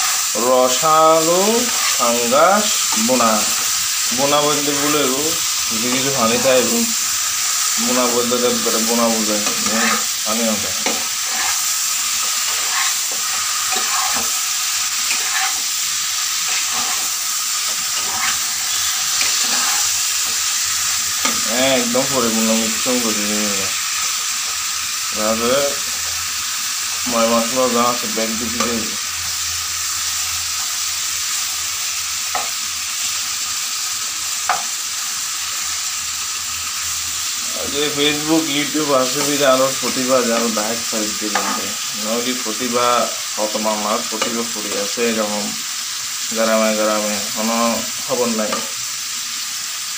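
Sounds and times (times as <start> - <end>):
spatula scraping a pan: 0.0 - 22.8, 39.0 - 41.9
fish sizzling in a pan: 0.0 - 49.9.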